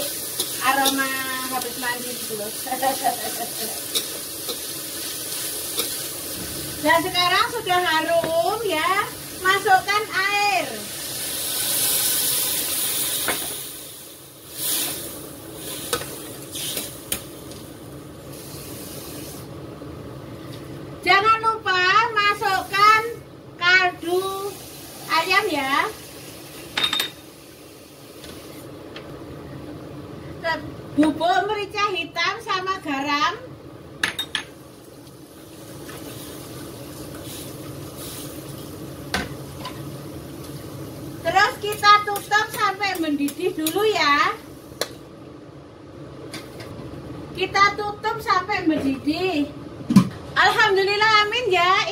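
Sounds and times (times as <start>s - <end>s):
water sizzling in hot wok: 0.0s - 19.6s, 22.0s - 23.2s, 23.8s - 28.8s, 34.5s - 45.0s.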